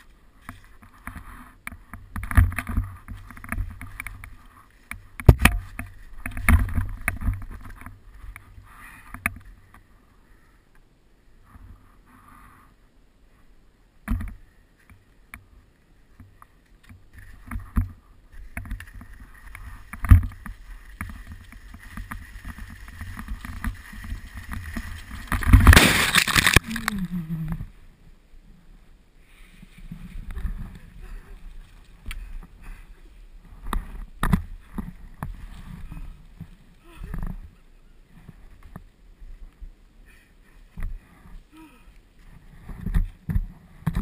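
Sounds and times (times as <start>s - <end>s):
skis scraping over hard snow: 18.4s - 26.9s.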